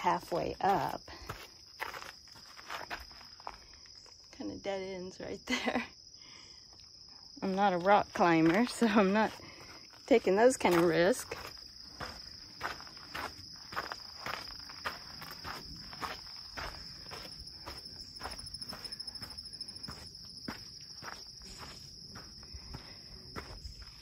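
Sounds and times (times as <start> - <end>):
footsteps on a trail: 0.0 - 4.3, 6.8 - 24.0
insects trilling: 0.0 - 24.0.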